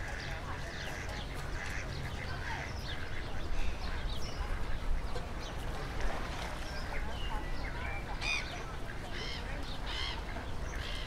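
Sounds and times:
ducks quacking: 0:00.0 - 0:03.4.

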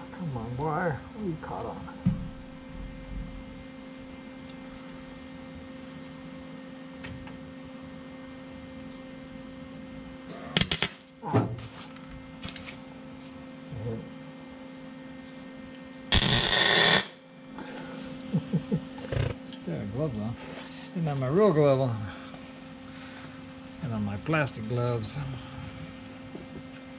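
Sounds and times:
steady electrical hum: 0:00.0 - 0:26.9
welding arc crackling: 0:10.6 - 0:11.1, 0:16.1 - 0:17.2.

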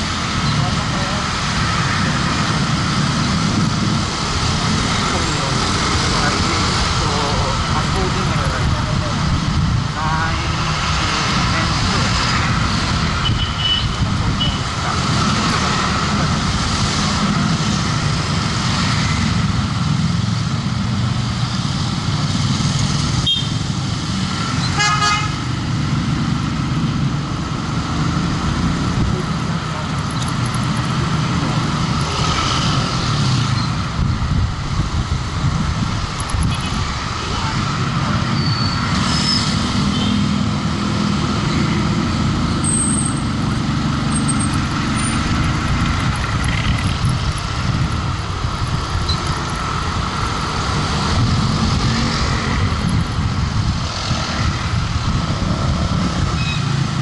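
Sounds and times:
vehicle horn toot: 0:13.2 - 0:14.6, 0:23.2 - 0:23.6, 0:24.7 - 0:25.4
motorcycle engine: 0:35.2 - 0:57.0.

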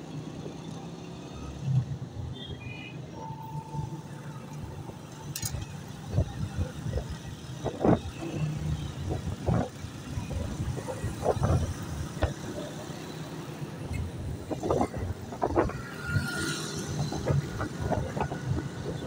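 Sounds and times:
street traffic: 0:00.0 - 0:19.0.

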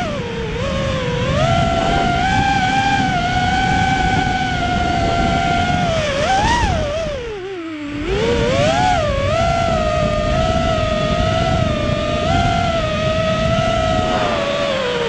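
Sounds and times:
quadcopter motors buzzing whine: 0:00.0 - 0:15.0
rush of air: 0:13.4 - 0:15.0.

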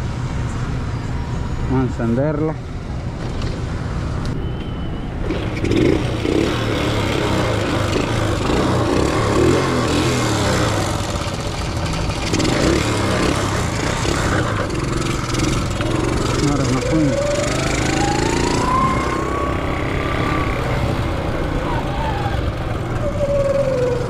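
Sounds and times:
motorcycle engine running: 0:05.3 - 0:24.0.

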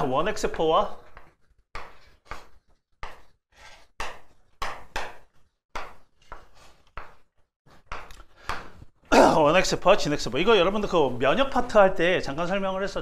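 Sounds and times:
chalk writing on chalkboard: 0:01.2 - 0:05.1.

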